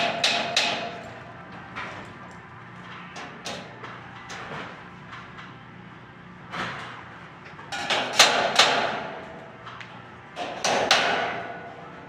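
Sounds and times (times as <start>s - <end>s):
metallic knocks on steel framing: 0.0s - 1.0s, 10.6s - 11.6s.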